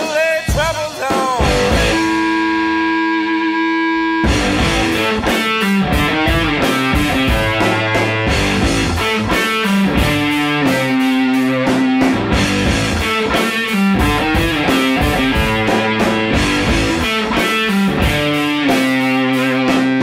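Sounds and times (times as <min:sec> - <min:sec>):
guitar-led rock song: 0:00.0 - 0:20.0.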